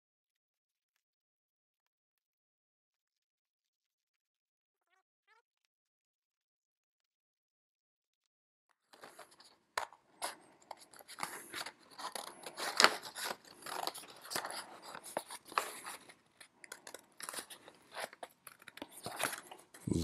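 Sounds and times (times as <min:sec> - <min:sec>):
stiff card rustling: 0:08.9 - 0:19.9.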